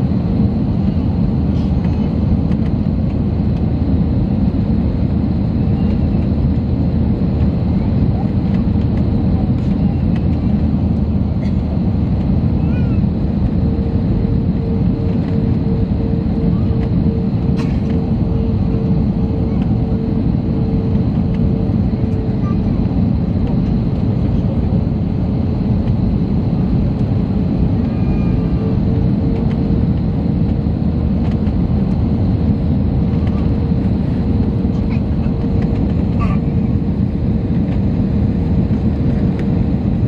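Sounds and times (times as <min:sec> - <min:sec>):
airliner engines and airflow rumble: 0:00.0 - 0:40.0
faint pulsing hum: 0:00.0 - 0:40.0.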